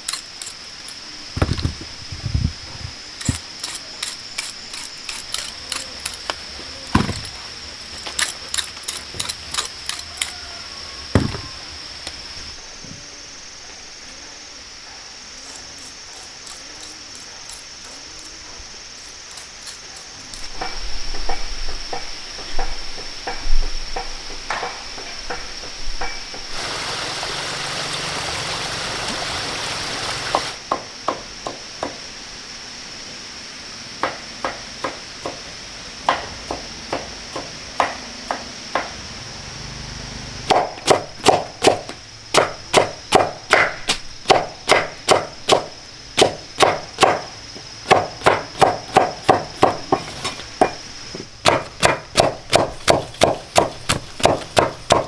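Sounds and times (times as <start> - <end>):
even hiss: 0.0 - 55.0.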